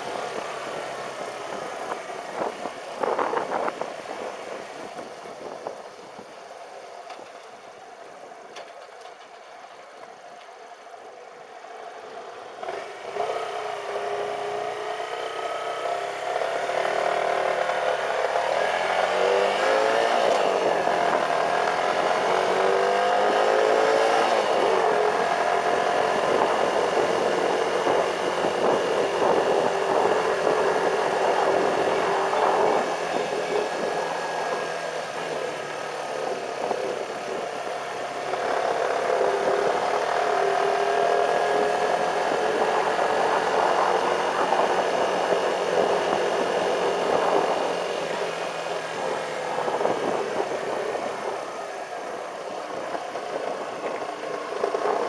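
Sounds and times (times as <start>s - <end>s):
motorcycle engine: 0.0s - 55.0s
rushing wind and road noise: 0.0s - 55.0s.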